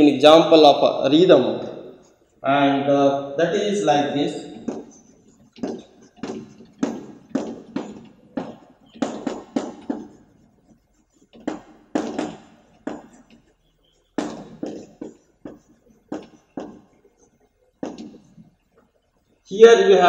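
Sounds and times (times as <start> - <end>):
chalk tapping and scraping on blackboard: 4.3 - 19.4.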